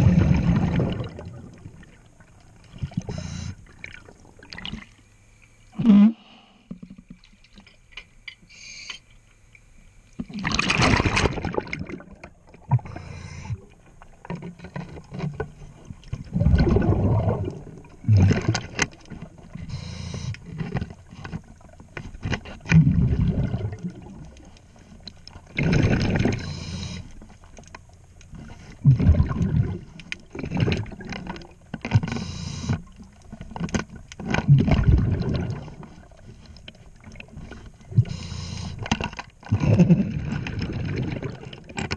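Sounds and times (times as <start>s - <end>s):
underwater bubbles rumbling: 0.0s - 4.8s, 10.2s - 19.5s, 22.6s - 27.2s, 28.8s - 31.7s, 33.0s - 41.8s
small clicks and knocks: 31.1s - 34.5s.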